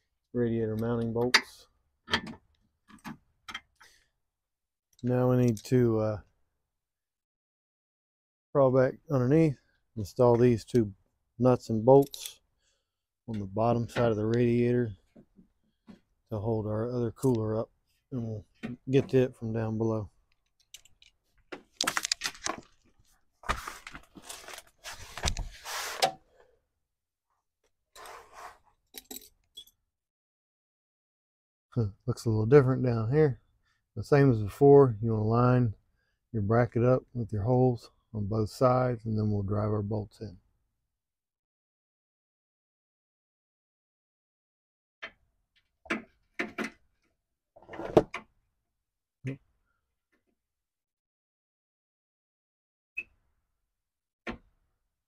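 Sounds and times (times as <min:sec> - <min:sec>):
tools handling noise: 0:12.0 - 0:12.4, 0:20.4 - 0:22.8, 0:28.9 - 0:29.8
rustling and scraping on cardboard: 0:23.4 - 0:26.0.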